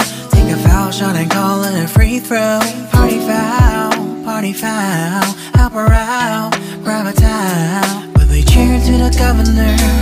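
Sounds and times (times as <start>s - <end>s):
deep bass and beat: 0.0s - 4.1s, 5.6s - 6.2s, 7.2s - 10.0s
r and b music: 0.0s - 10.0s.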